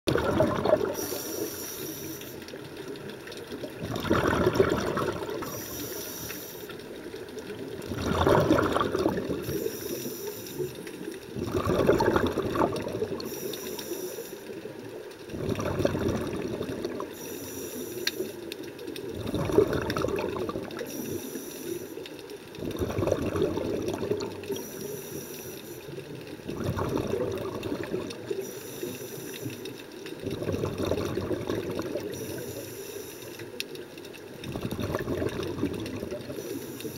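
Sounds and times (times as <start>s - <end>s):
exhaled bubbles gurgling: 0.1s - 36.9s
regulator inhale hiss: 0.9s - 2.6s, 5.4s - 6.9s, 9.4s - 11.1s, 13.2s - 14.7s, 17.0s - 18.5s, 20.8s - 22.2s, 24.5s - 26.1s, 28.3s - 29.8s, 32.1s - 33.6s, 36.3s - 36.9s.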